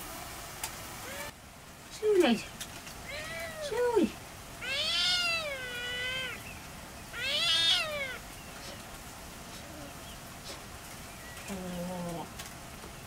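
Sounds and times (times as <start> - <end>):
animal calling in drawn-out cries: 4.6 - 6.4, 7.1 - 8.2.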